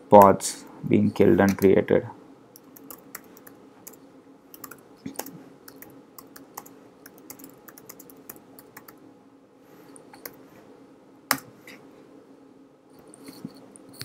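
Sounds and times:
faint steady hum: 0:00.0 - 0:14.0
computer keyboard typing: 0:02.6 - 0:09.0.

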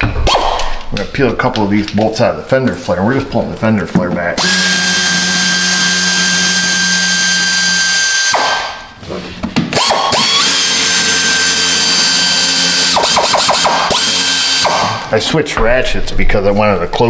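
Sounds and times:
power ratchet running: 0:04.4 - 0:08.4, 0:09.8 - 0:14.8.

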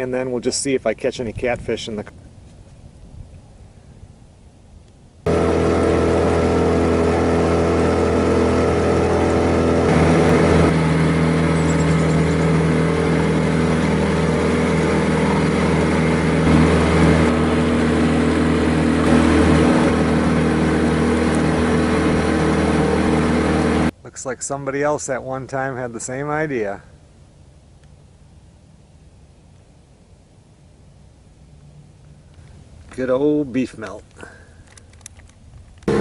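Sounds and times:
outboard motor running: 0:05.3 - 0:23.9, 0:35.8 - 0:36.0.

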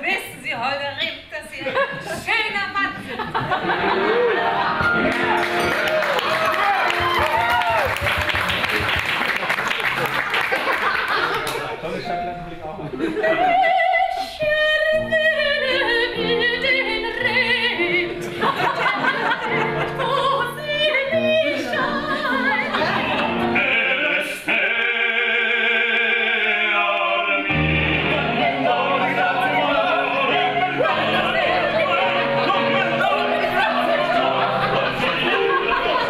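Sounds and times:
piano accompaniment: 0:03.4 - 0:09.1, 0:11.4 - 0:36.0
women singing opera: 0:13.2 - 0:36.0.

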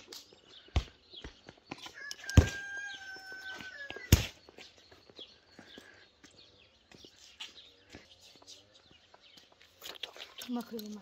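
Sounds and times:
rooster crowing: 0:02.0 - 0:04.1
utensils clicking and clinking: 0:09.8 - 0:11.0.

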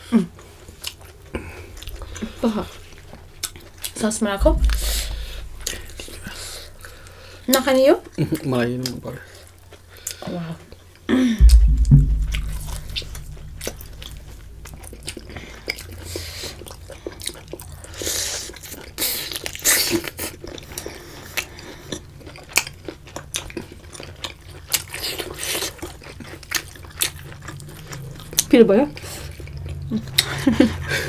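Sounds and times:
loud low thump: 0:04.4 - 0:07.9, 0:11.4 - 0:15.8.

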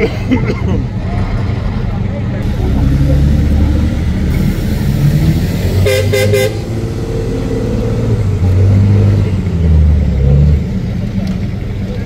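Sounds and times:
truck engine rumble: 0:00.0 - 0:12.0
vehicle horn toots: 0:05.8 - 0:06.7.

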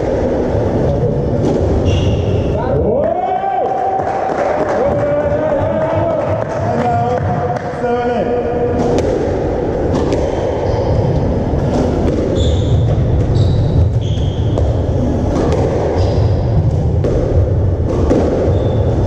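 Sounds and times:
low hall rumble: 0:00.0 - 0:19.0
shoe squeaks on wooden floor: 0:01.8 - 0:02.4, 0:12.3 - 0:14.6, 0:18.5 - 0:19.0
squash ball smacking walls: 0:08.7 - 0:19.0.

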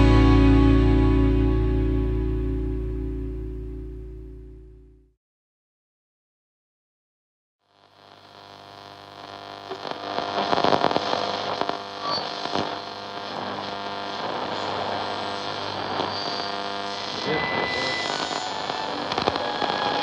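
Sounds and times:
crackling static: 0:07.6 - 0:20.0
droning hum of held tones: 0:08.0 - 0:20.0.

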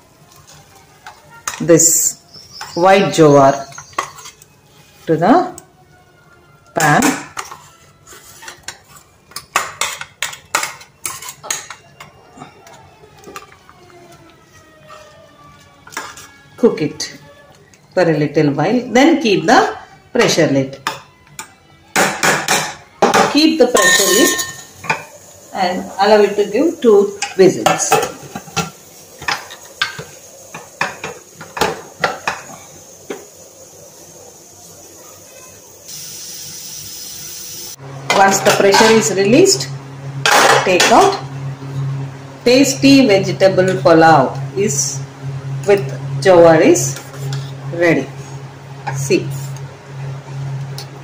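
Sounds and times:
metal spoon clinking on steel vessel: 0:23.8 - 0:25.0.

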